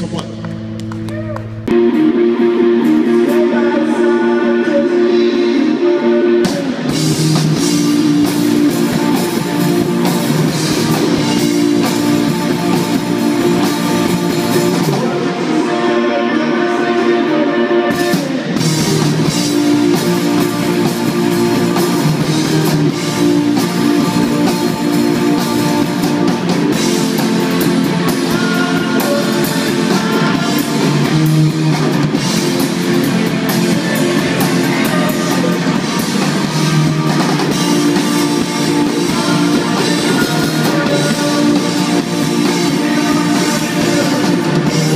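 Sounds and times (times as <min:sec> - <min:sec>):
electric guitars: 0:00.0 - 0:44.9
drum kit: 0:06.2 - 0:44.9.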